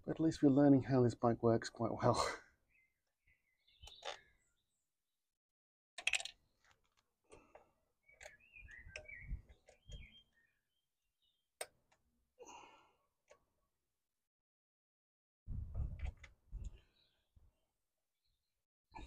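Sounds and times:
tools clicking and knocking: 6.0 - 7.6.

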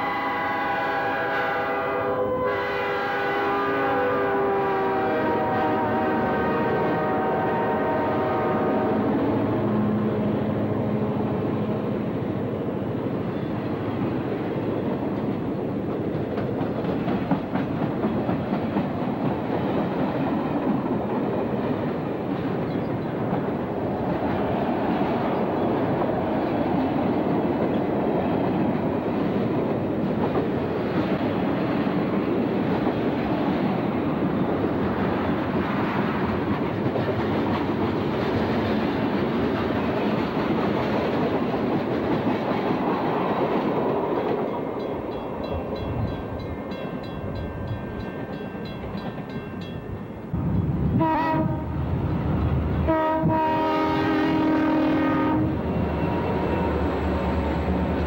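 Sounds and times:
diesel locomotive horn: 0.0 - 11.4, 50.9 - 51.9, 52.8 - 58.0
freight train rumbling on rails: 0.0 - 58.0.

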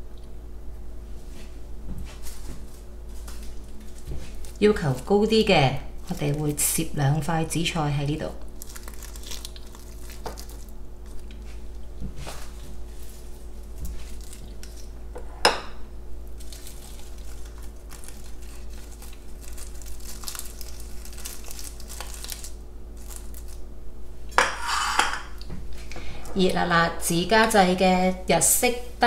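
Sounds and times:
dried seaweed sheets crinkling: 2.1 - 15.0, 16.2 - 23.7.

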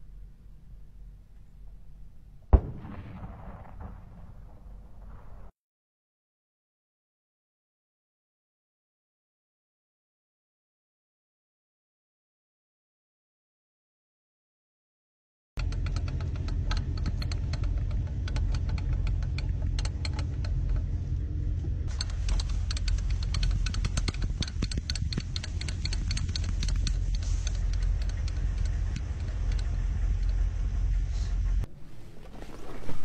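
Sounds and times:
clicking and rattling: 15.6 - 31.7
microphone handling noise: 31.7 - 33.0.

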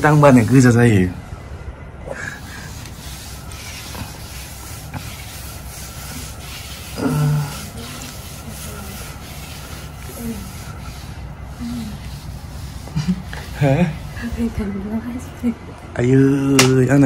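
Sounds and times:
mop scraping concrete floor: 2.4 - 15.0.

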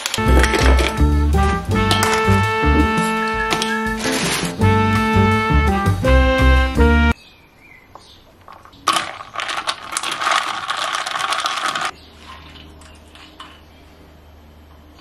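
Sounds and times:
ice cubes clinking in glass jar: 8.5 - 12.0.

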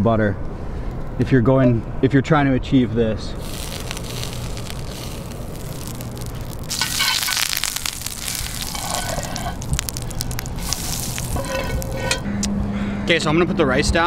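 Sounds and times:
butter sizzling and crackling in oil: 3.4 - 12.2.

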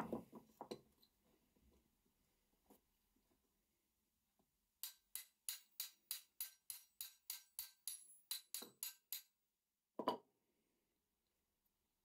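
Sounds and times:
sharp metallic clicks: 4.8 - 9.3.

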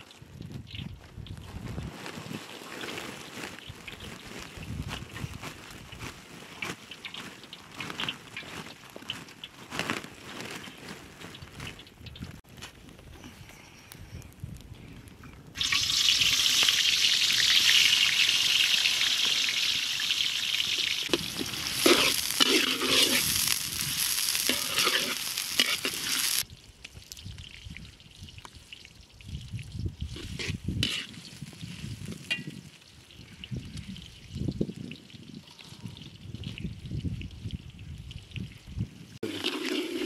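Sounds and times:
rustling: 1.4 - 13.2, 21.1 - 26.4
food sizzling in hot oil: 15.6 - 26.5
stirring noises: 21.1 - 26.4, 30.1 - 31.4.

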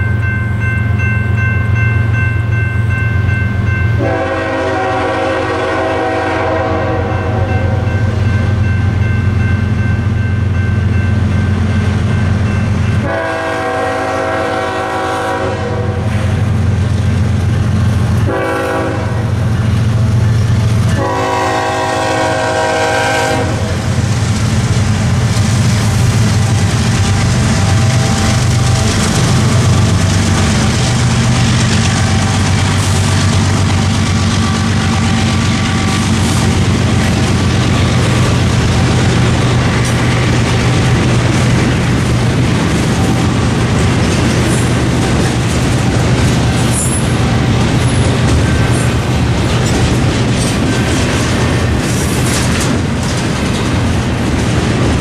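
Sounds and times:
train wheels clacking on rails: 0.0 - 55.0
locomotive air horn: 4.0 - 8.2, 13.0 - 16.4, 18.2 - 24.0
diesel engines rumbling: 16.2 - 55.0.

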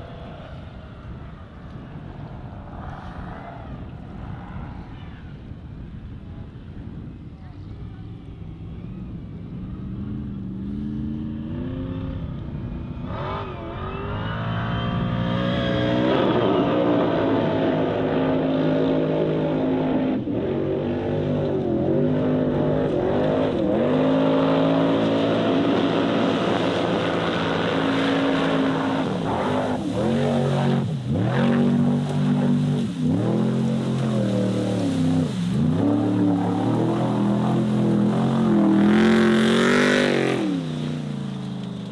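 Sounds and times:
buggy engine revving hard: 13.0 - 41.4.

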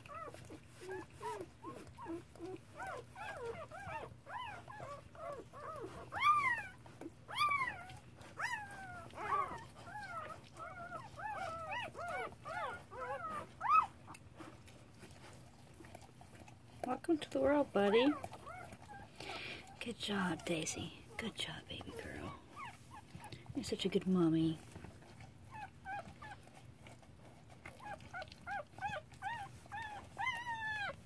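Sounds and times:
puppy squeaking cries: 0.1 - 14.0.

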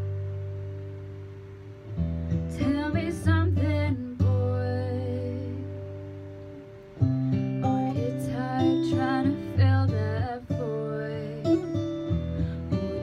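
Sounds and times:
acoustic guitar playing: 0.0 - 13.0
woman singing: 2.5 - 6.0, 7.6 - 13.0.

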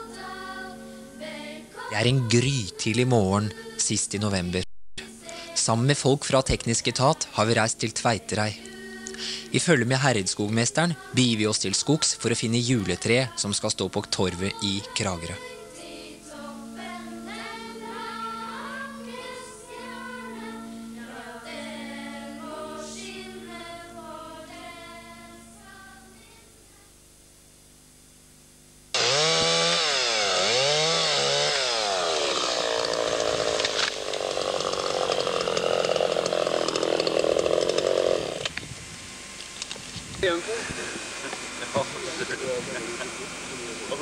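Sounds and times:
background music: 0.0 - 26.6
chainsaw revving and cutting: 28.9 - 38.5.

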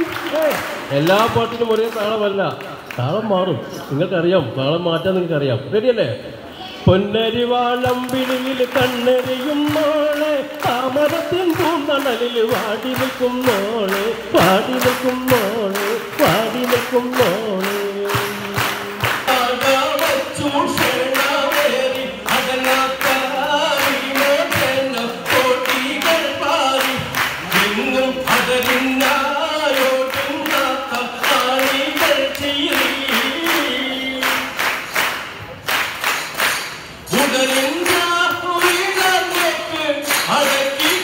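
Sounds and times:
hands clapping in rhythm: 0.0 - 3.1, 7.7 - 41.0
person singing into a microphone: 6.6 - 34.8, 37.1 - 41.0
crowd singing along: 7.2 - 34.6.

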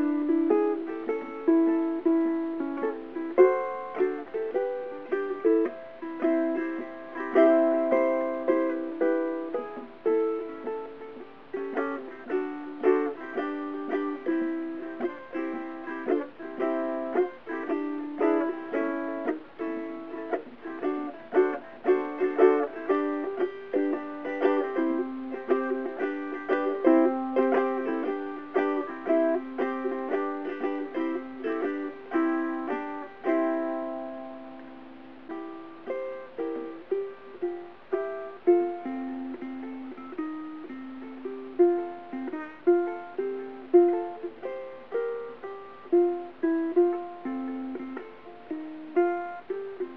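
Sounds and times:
ukulele playing blues: 0.0 - 49.9.

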